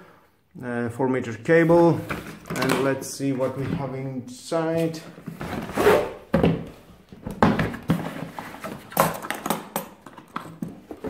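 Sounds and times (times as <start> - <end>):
plastic case thunking and scraping: 5.3 - 11.0.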